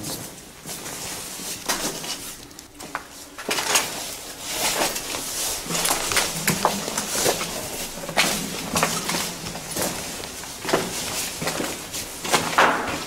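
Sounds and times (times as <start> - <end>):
footsteps on gritty concrete: 4.6 - 12.0.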